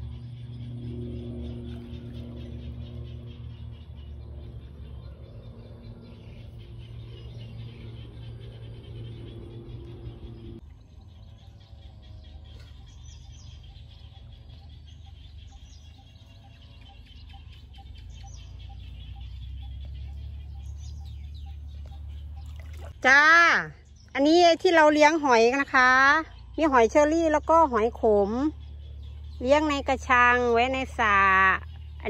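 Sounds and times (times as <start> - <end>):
low rumble: 0.0 - 23.0
birds chirping: 0.0 - 32.0
steady motor hum: 0.0 - 32.0.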